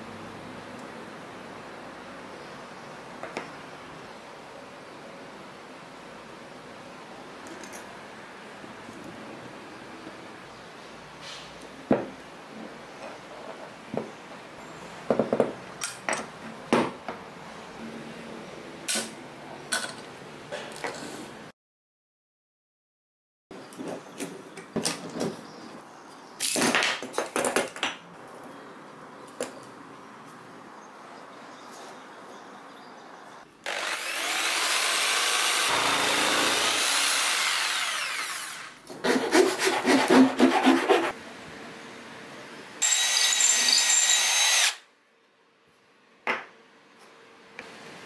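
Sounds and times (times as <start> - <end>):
power tool running: 33.6 - 38.8, 42.8 - 44.8
wood grinding against tool: 35.6 - 41.2.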